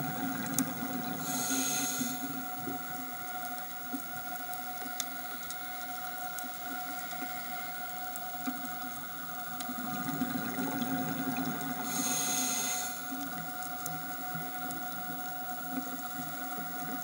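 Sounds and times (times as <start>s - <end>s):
steady underwater hum: 0.0s - 17.0s
faint clicks: 2.6s - 10.6s, 13.1s - 17.0s.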